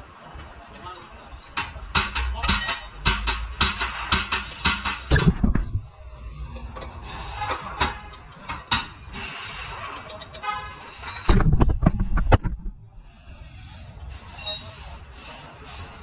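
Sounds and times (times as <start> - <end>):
loud low knocking noise: 3.0 - 5.9, 11.3 - 12.9.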